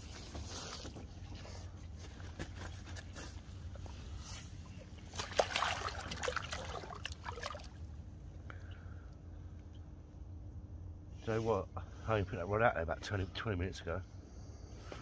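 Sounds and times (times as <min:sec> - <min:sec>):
water splashing in a net: 0:05.0 - 0:07.8.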